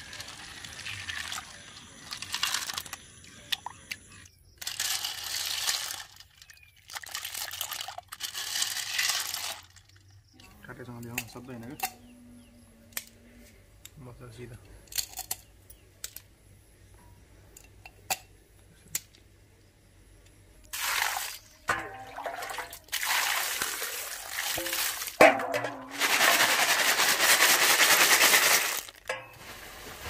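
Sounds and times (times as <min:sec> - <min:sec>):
snail shells clattering in bowl: 0:00.0 - 0:03.0, 0:04.6 - 0:10.0, 0:21.8 - 0:29.1
water sloshing: 0:20.7 - 0:26.0.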